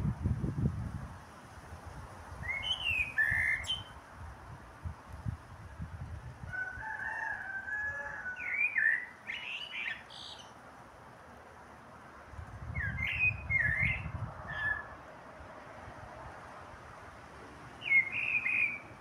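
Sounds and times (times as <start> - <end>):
blackbird singing: 2.4 - 4.0, 8.3 - 10.5, 12.7 - 15.0, 17.8 - 19.0.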